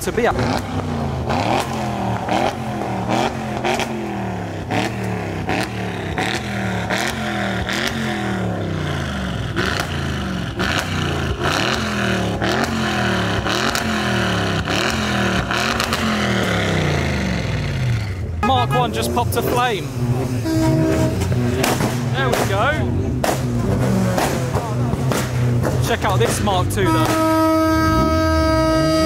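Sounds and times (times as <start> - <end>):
car engine revving: 0.0 - 29.0
exhaust pops: 9.5 - 16.6, 19.0 - 28.0.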